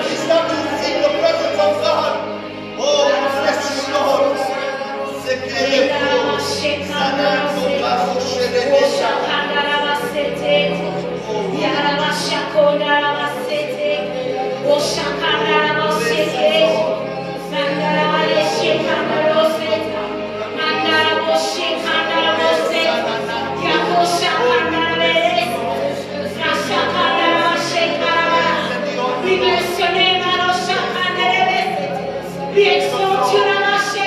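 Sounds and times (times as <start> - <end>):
woman singing into a microphone: 26.4 - 32.0, 32.6 - 34.0.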